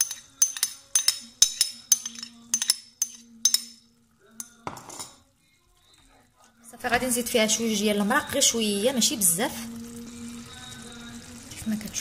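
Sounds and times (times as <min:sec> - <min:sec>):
metal spoon clinking against pan: 0:00.0 - 0:05.2.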